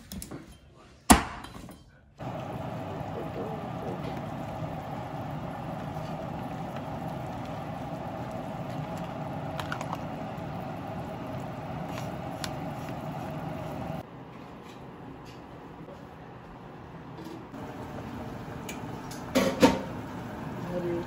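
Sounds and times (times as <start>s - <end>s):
broth boiling in a pot: 2.2s - 14.1s, 17.5s - 21.0s.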